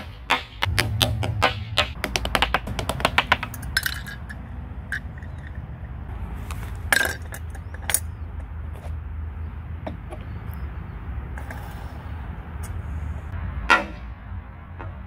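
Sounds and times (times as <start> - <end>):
plastic ball bouncing down steps: 0.3 - 4.1.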